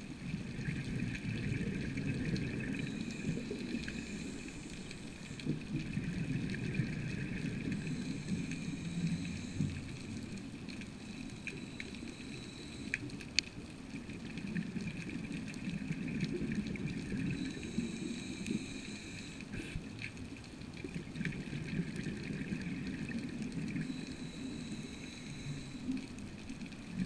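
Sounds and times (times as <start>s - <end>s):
underwater rush of water: 0.0s - 27.0s
high-pitched whine: 2.4s - 5.5s, 6.6s - 13.0s.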